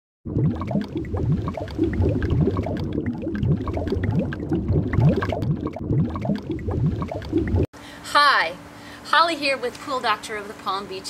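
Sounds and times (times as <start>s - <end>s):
water bubbling and gurgling: 0.2s - 7.7s.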